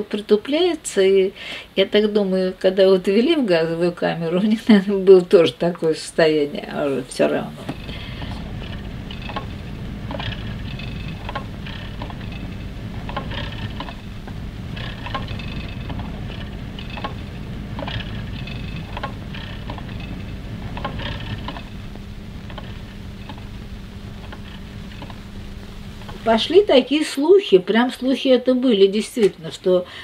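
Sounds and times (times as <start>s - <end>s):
low machine hum: 2.0s - 30.0s
printing press clatter: 7.7s - 21.8s.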